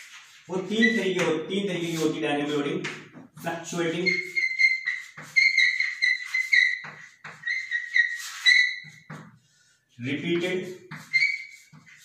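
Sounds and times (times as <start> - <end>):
chalk squeaking on blackboard: 0.0 - 2.7, 3.4 - 9.8, 10.4 - 12.0
chalk tapping on board: 4.1 - 9.4, 10.4 - 12.0.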